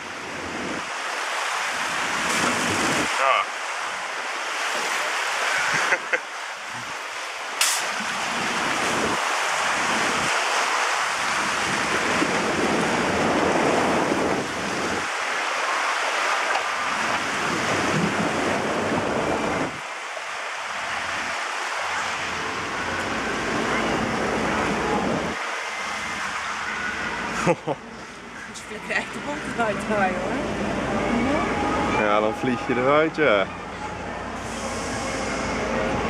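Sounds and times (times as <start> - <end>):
churning river water: 0.0 - 36.0
wind on microphone: 8.1 - 10.4, 11.1 - 15.2, 16.8 - 19.9.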